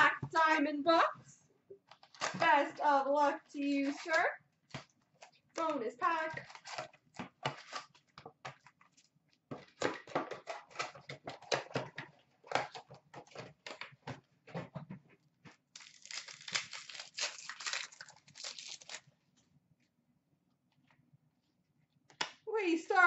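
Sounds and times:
packaging crinkling and clicking: 6.4s - 9.0s, 15.8s - 19.1s
foil wrapper tearing: 15.7s - 19.1s.

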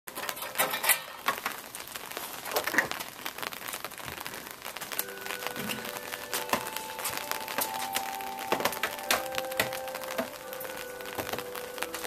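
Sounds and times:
rain drops pattering: 0.1s - 12.0s
steady held tones: 4.7s - 12.0s.

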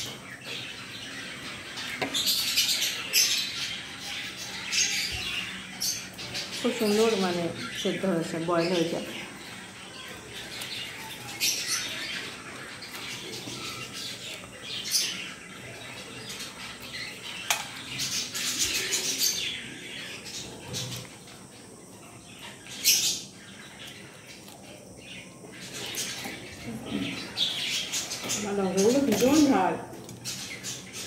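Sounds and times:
wet chewing: 23.8s - 24.8s.

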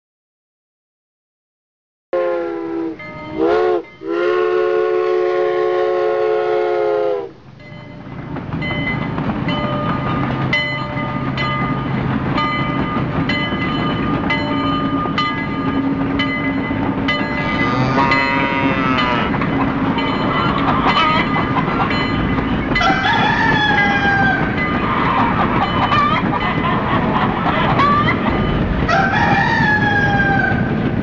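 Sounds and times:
train whistle: 2.2s - 7.4s, 17.4s - 19.4s
train wheels clacking: 7.4s - 31.0s.

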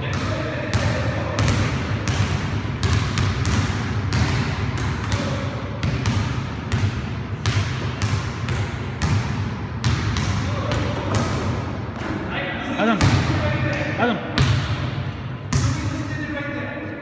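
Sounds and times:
basketballs bouncing on gym floor: 0.0s - 16.0s.

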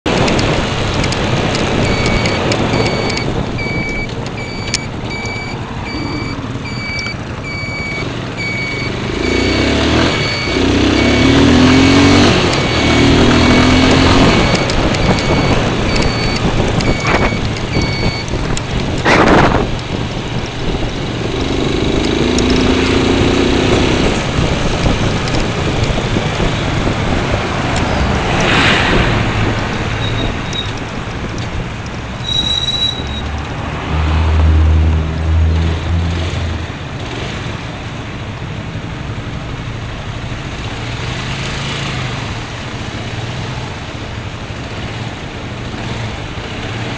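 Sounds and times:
wind and road noise: 0.0s - 46.9s
motorcycle engine accelerating: 0.1s - 32.1s
electronic beeps: 1.8s - 18.4s, 30.0s - 30.8s.

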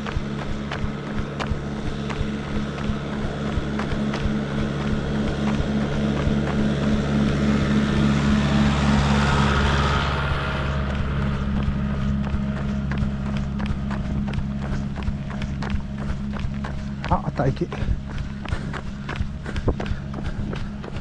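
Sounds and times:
runner's footsteps: 0.0s - 8.8s, 10.7s - 21.0s
tractor engine passing: 0.0s - 17.8s.

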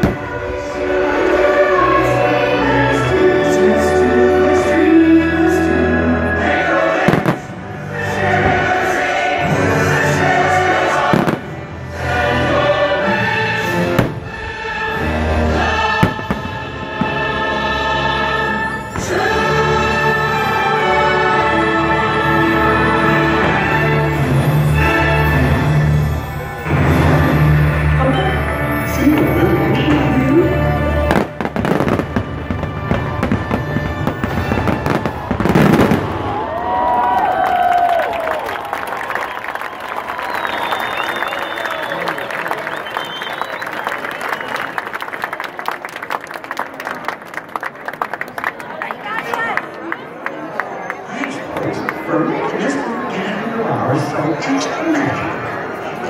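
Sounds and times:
fireworks bangs and crackles: 0.0s - 0.5s, 6.9s - 9.6s, 10.9s - 11.9s, 13.9s - 14.4s, 15.9s - 17.3s, 31.0s - 36.6s
choir singing over orchestral music: 0.0s - 36.1s.

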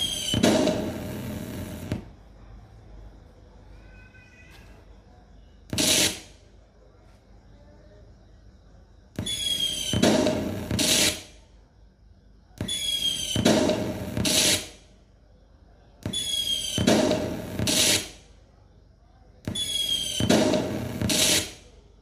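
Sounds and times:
crackling bangs: 0.0s - 2.2s, 5.7s - 6.5s, 9.2s - 11.4s, 12.6s - 14.8s, 16.0s - 18.2s, 19.5s - 21.7s.

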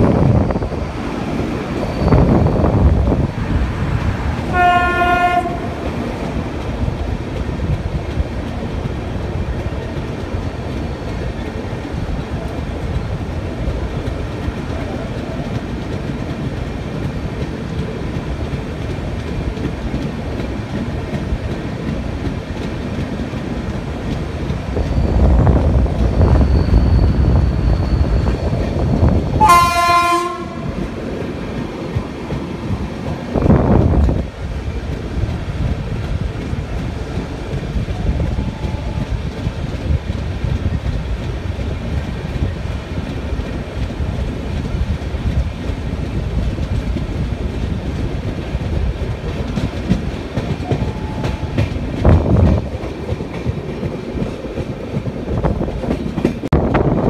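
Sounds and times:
train running along track: 0.0s - 57.0s
train horn: 4.5s - 5.8s, 29.4s - 30.8s.

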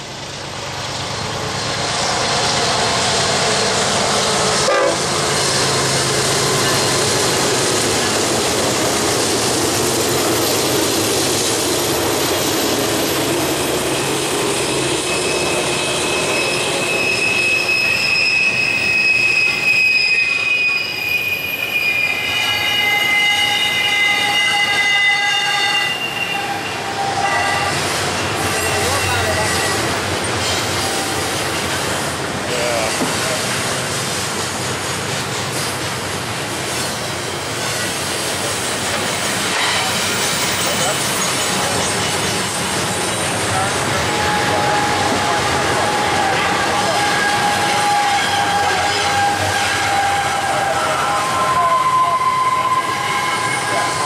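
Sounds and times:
freight train rumbling and rattling: 0.0s - 54.0s
steel wheels squealing: 1.1s - 54.0s.

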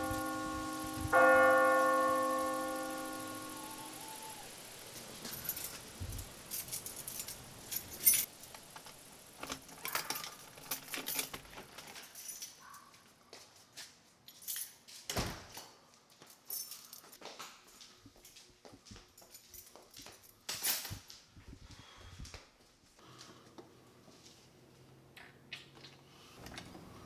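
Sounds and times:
keys jangling: 5.2s - 8.3s, 9.4s - 12.8s, 14.3s - 15.1s, 16.2s - 17.2s, 19.2s - 21.1s.

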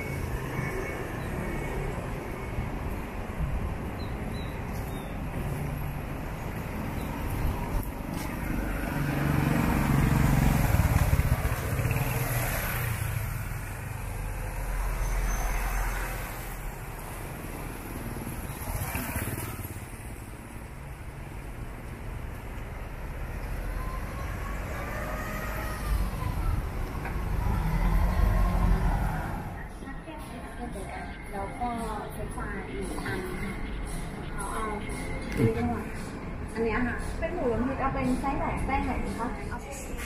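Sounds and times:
cars and motorcycles passing: 0.0s - 40.0s
nearby engine: 6.6s - 16.0s.

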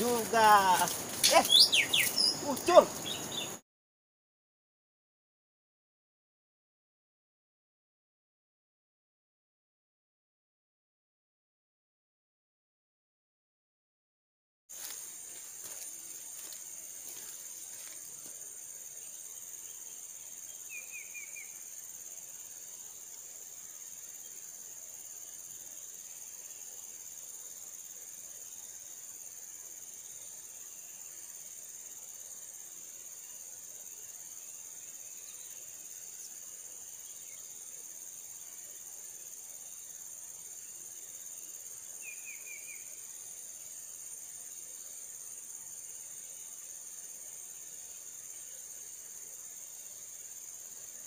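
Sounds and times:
high-pitched insect drone: 0.0s - 3.6s, 14.8s - 51.0s
bird chirps: 1.2s - 3.6s.

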